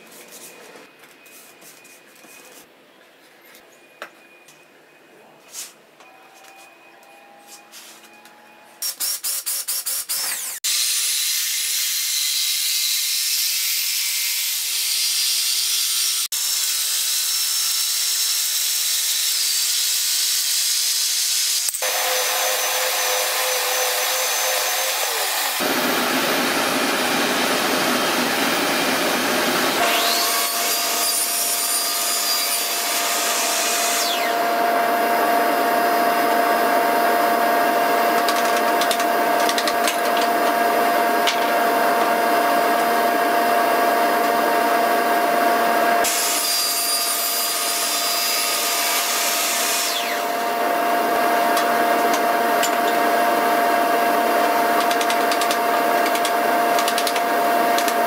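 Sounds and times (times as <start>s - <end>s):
miter saw cutting plastic pipe: 8.9s - 58.0s
power tools running: 21.6s - 58.0s.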